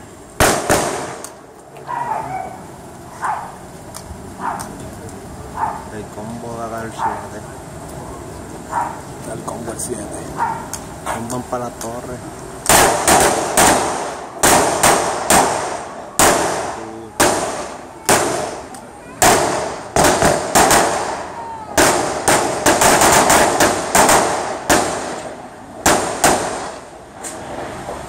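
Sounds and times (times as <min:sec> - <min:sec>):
gunshots with long echo: 0:00.4 - 0:01.4, 0:12.7 - 0:26.9.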